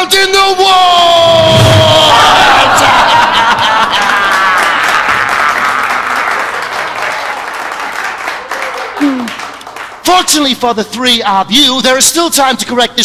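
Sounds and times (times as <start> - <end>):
man shouting: 0.0 - 3.3
audience applauding: 2.2 - 10.0.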